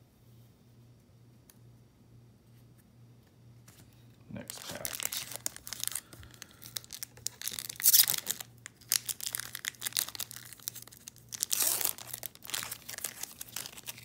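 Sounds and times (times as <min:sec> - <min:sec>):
wrapper tearing and crinkling: 0:04.4 - 0:14.0.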